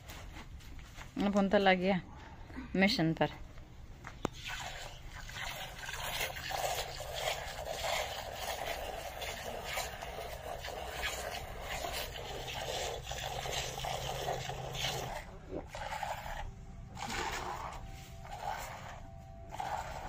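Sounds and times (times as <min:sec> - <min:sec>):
milk squirting into pail: 0:04.2 - 0:20.0.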